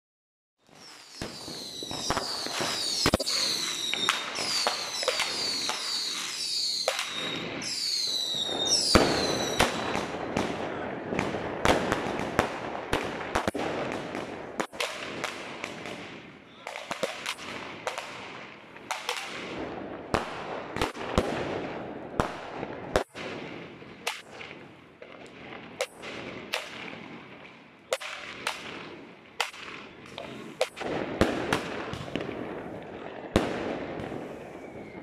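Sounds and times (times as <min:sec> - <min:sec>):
rushing of bursting firework stars: 0:00.6 - 0:10.6
firework bangs: 0:00.6 - 0:35.0.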